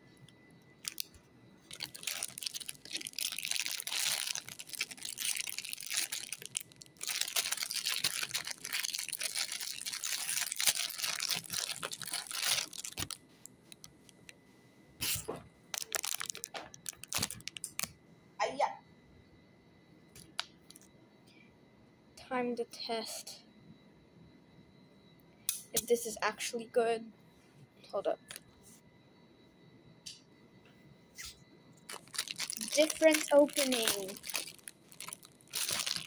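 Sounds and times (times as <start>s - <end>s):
plastic wrapper crinkling: 0.8s - 14.4s, 15.7s - 17.9s, 31.9s - 36.0s.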